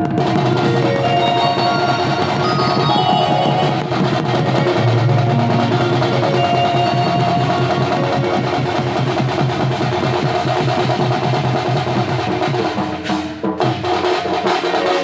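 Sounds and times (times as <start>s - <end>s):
melody of held notes: 0.0s - 10.0s
barrel drums beaten fast: 0.0s - 15.0s.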